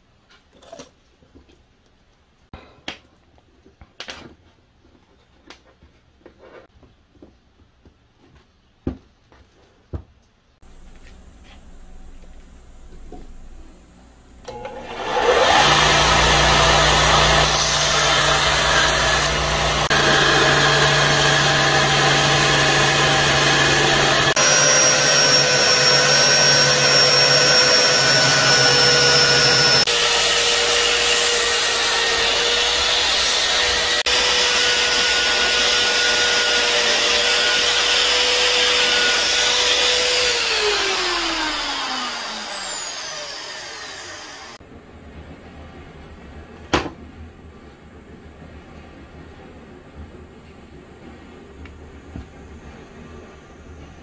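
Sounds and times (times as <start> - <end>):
motor spinning down: 14.8 - 30.0, 39.2 - 44.6
belt grinder sanding wood: 14.8 - 44.6.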